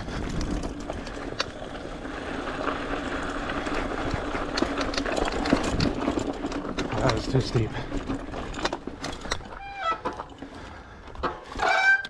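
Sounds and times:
electric bike motor humming: 0.0 - 9.7
bike clicks and rattles: 0.0 - 12.0.

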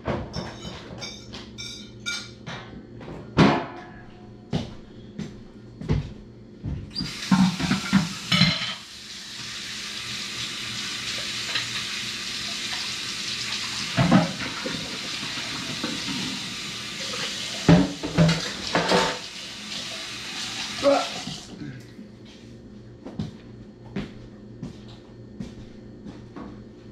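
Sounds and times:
dishes and cutlery clattering: 0.2 - 2.7, 7.3 - 8.9, 17.2 - 19.2
tap running into sink: 7.0 - 8.6, 13.6 - 21.5.

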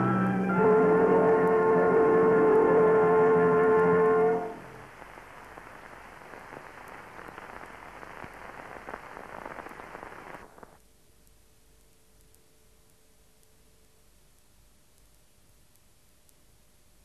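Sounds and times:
faint steady hum: 0.0 - 17.0
film soundtrack hiss and crackle: 0.0 - 17.0
clicks and pops: 4.8 - 11.4.

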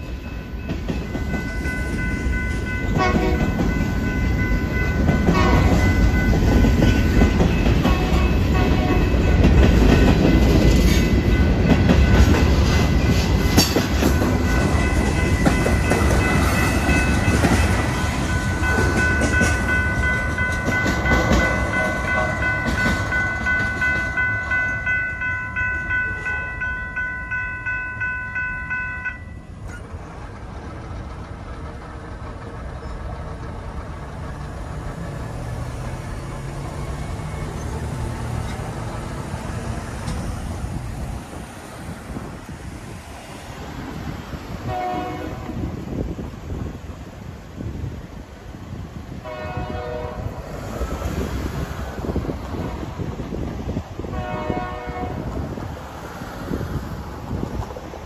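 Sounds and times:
crossing warning bell ringing: 0.0 - 30.0, 34.8 - 41.4, 43.5 - 50.6
freight train wheels rumbling: 0.0 - 58.0
quiet road traffic: 0.0 - 58.0.

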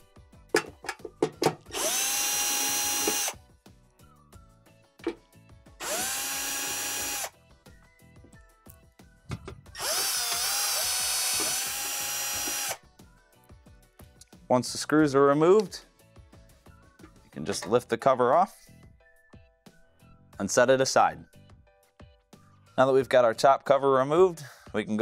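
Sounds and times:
cordless drill whining: 1.6 - 3.4, 5.8 - 7.3, 9.7 - 12.8.

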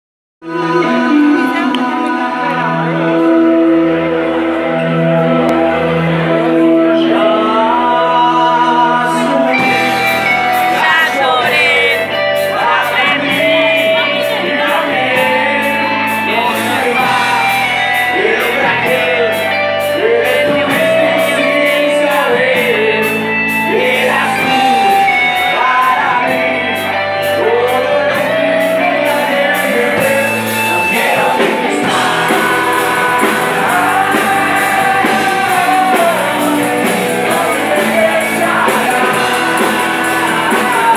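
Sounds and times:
live rock band playing: 0.4 - 40.9
person singing: 0.4 - 40.9
fast cymbal beat: 30.1 - 40.9.

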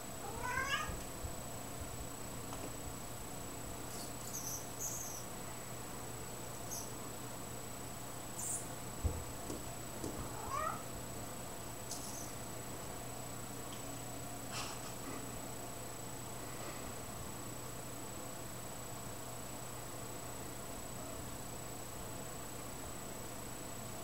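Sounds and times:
cat chirping: 0.2 - 1.0, 10.4 - 10.8.

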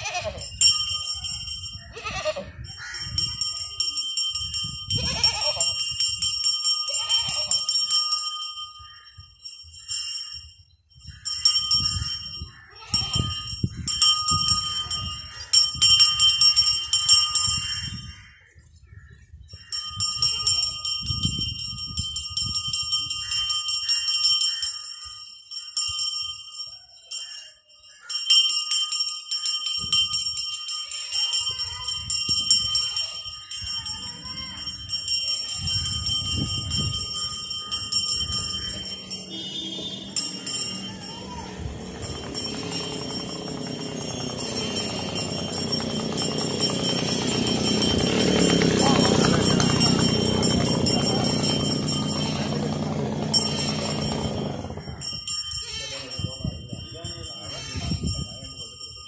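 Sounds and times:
goat bleating: 0.0 - 0.4, 1.9 - 2.5, 5.0 - 5.7
metal bells ringing: 0.0 - 18.7, 19.5 - 59.0.

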